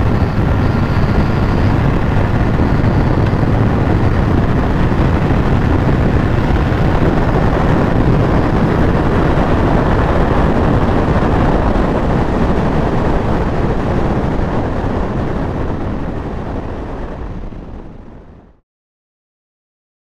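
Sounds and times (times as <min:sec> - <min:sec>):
motorcycle engine: 0:00.0 - 0:13.8
wind rushing over microphone: 0:00.0 - 0:18.6.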